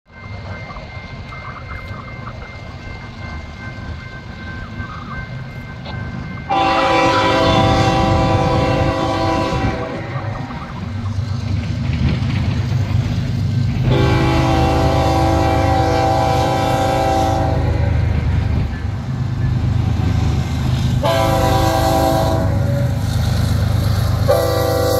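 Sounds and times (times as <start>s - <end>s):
train rumbling: 0.1s - 24.9s
locomotive air horn chord: 6.5s - 10.4s, 13.9s - 18.2s, 21.0s - 22.9s, 24.3s - 24.9s.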